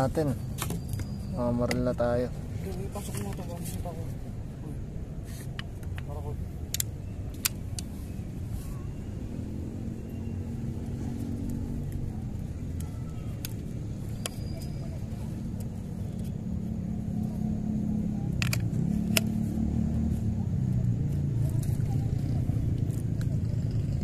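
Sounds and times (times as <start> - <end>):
low engine-like rumble: 0.9 - 24.0
crossbow clicks and knocks: 18.3 - 19.4.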